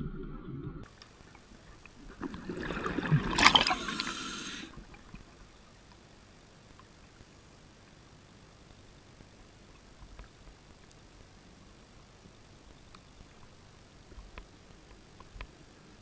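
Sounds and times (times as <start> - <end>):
underwater exhaled bubbles gurgling: 0.0 - 5.3.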